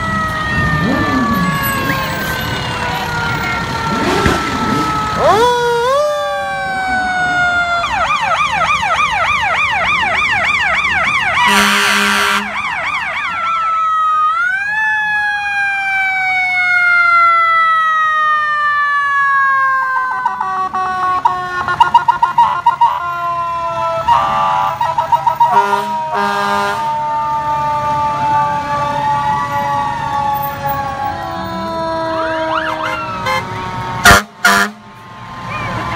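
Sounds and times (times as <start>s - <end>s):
fire truck sirens wailing: 0.0s - 35.9s
siren yelp: 0.0s - 35.9s
loud horn blasts: 11.4s - 12.6s, 20.3s - 22.0s, 24.0s - 27.0s, 32.7s - 34.9s.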